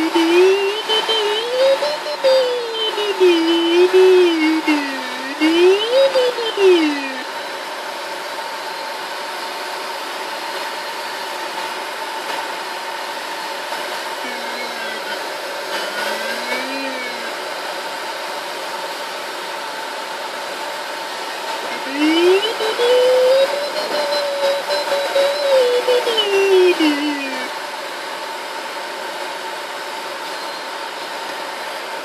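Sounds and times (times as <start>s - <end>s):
electronic variometer tone: 0.0s - 7.4s, 16.0s - 17.4s, 21.7s - 27.5s.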